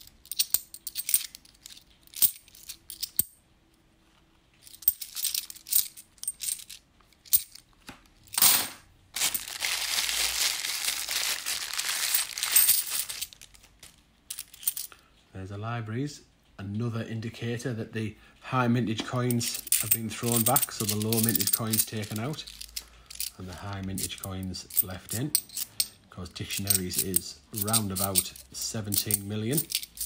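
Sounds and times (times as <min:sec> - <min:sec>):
coins clinking: 0:00.0 - 0:03.4, 0:04.6 - 0:07.6, 0:08.2 - 0:13.7, 0:14.3 - 0:14.9, 0:19.3 - 0:30.0
plastic bag rustling: 0:09.1 - 0:14.0.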